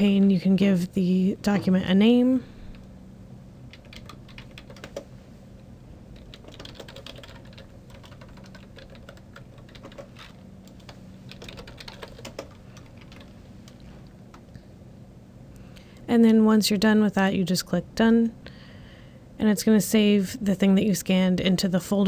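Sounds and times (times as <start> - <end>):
faint low hum: 0.0 - 22.0
keyboard typing clicks: 6.2 - 14.4.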